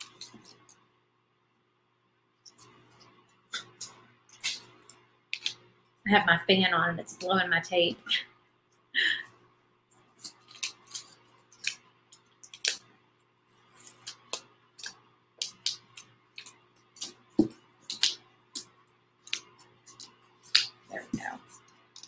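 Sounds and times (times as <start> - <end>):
tape crinkling and clicking: 0.0 - 0.9, 10.0 - 12.9, 13.7 - 22.0.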